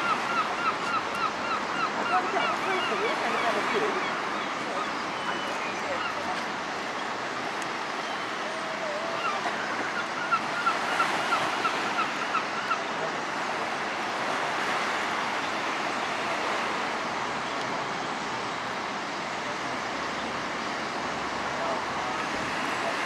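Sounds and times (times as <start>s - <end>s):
bird calling: 0.0s - 6.5s, 7.9s - 13.1s
sea surf washing: 0.0s - 23.0s.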